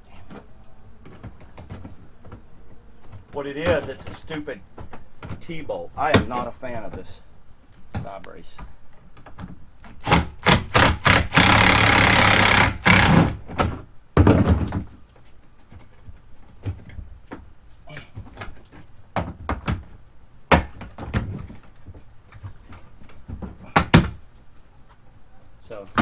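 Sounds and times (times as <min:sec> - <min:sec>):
hand tools clicking and knocking: 0:01.0 - 0:05.5.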